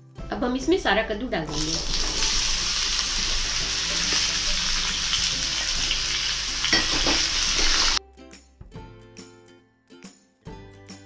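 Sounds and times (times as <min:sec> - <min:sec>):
soft background music: 0:00.0 - 0:11.0
pumpkin sizzling in hot oil: 0:01.5 - 0:08.0
steel ladle stirring: 0:06.5 - 0:08.0.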